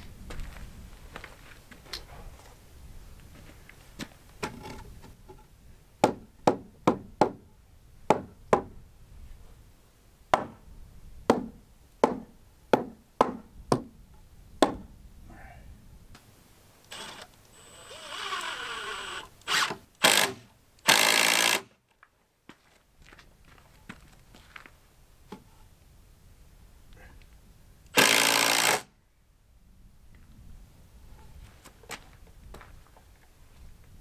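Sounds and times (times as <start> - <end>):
hammer striking timber: 6.0 - 7.4, 8.1 - 8.7, 10.3 - 10.6, 11.3 - 13.9, 14.6 - 14.8
loud harsh bursts: 28.0 - 28.9.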